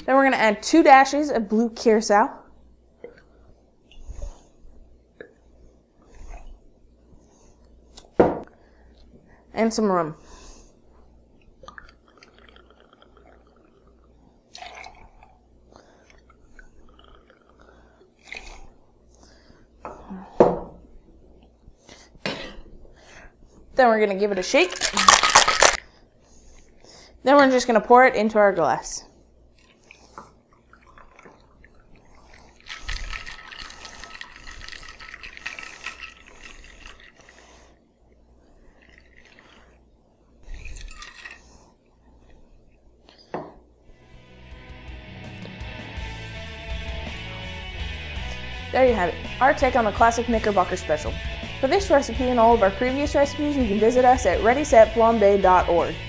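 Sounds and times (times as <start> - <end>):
liquid pouring into metal cup: 11.7 - 15.4, 30.6 - 37.6, 38.7 - 39.8, 40.4 - 41.6
ice cubes rattling in metal shaker: 24.5 - 25.8, 32.3 - 37.5, 40.5 - 41.6.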